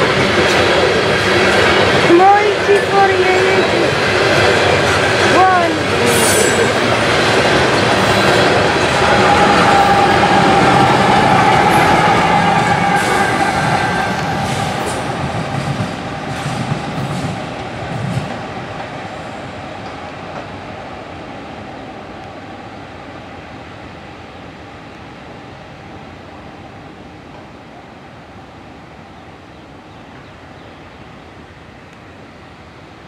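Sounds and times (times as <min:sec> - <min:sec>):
train wheels rumbling on rails: 0:00.0 - 0:23.4
train wheel squeal: 0:06.0 - 0:06.8, 0:07.8 - 0:15.1.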